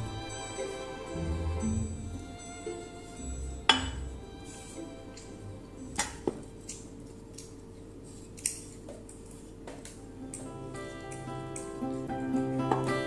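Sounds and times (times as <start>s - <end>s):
glass cup clinking on glass: 3.6s - 4.1s.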